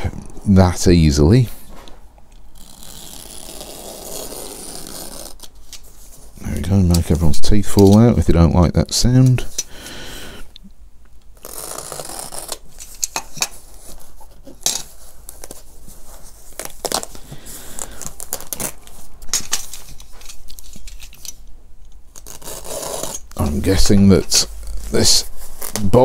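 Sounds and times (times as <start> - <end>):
cloth and newspaper tearing: 2.6 - 5.6, 11.4 - 12.8, 22.2 - 26.0.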